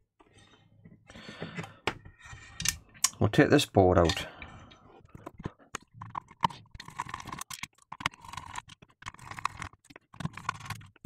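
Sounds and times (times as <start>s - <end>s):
small clicks taps and scrapes: 4.0s - 11.0s.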